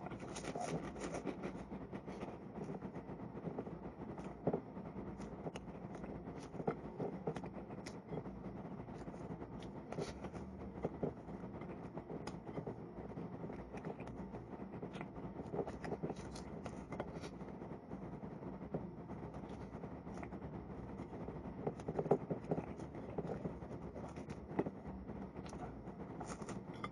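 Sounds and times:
chewing: 0:00.0 - 0:08.3
low room hum: 0:00.0 - 0:26.9.

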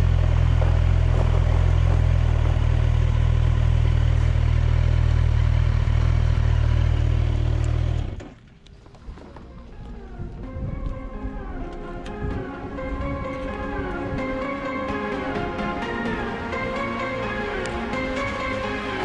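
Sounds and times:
motorcycle engine running: 0:00.0 - 0:08.4.

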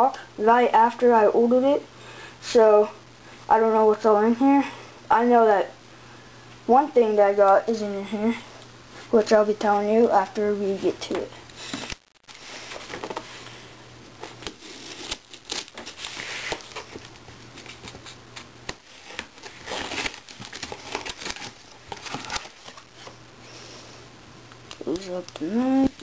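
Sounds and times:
packing tape slit and torn: 0:14.4 - 0:22.8.

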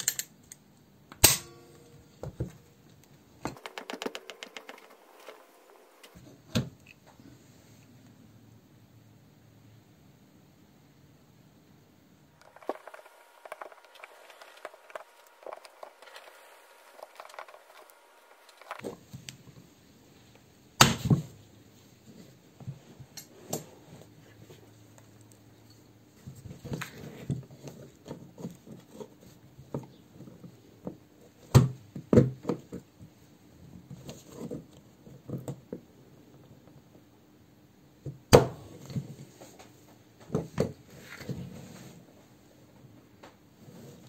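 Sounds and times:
metal tools clicking and scraping: 0:00.0 - 0:00.6.

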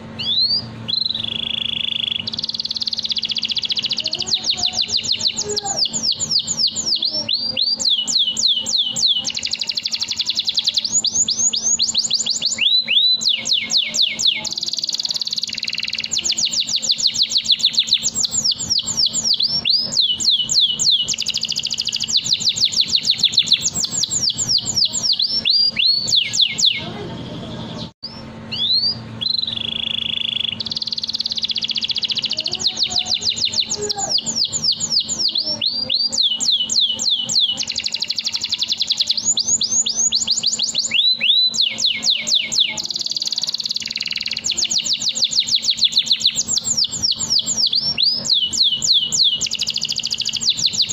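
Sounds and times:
canary singing trills: 0:00.0 - 0:50.9.

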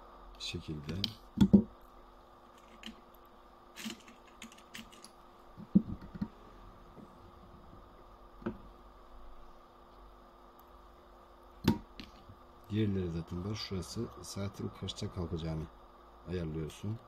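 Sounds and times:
faint steady hum: 0:00.0 - 0:17.0
small parts clicking and tapping: 0:02.5 - 0:03.1, 0:03.8 - 0:06.3.

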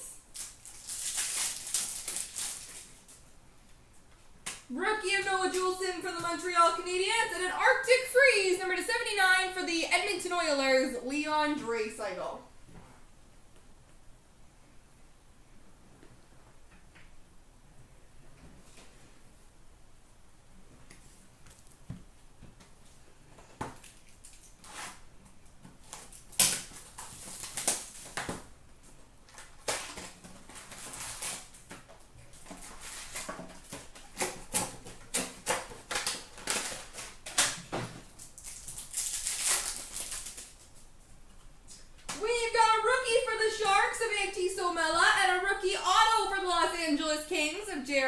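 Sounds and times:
wrappers crinkling and ripping: 0:00.2 - 0:03.2, 0:23.8 - 0:25.0, 0:25.8 - 0:28.5, 0:29.3 - 0:40.9.

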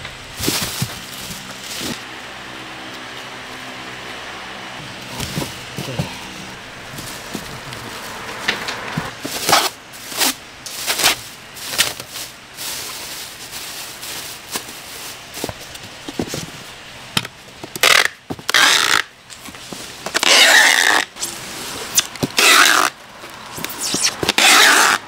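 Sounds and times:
plastic bag rustling: 0:00.3 - 0:02.1, 0:04.8 - 0:17.5
packing tape screeching off dispenser: 0:09.4 - 0:12.1, 0:17.8 - 0:19.1, 0:20.1 - 0:25.0.

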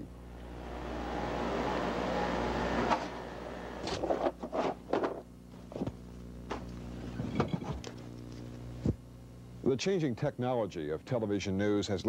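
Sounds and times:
cardboard and paper rustling: 0:03.8 - 0:06.0.

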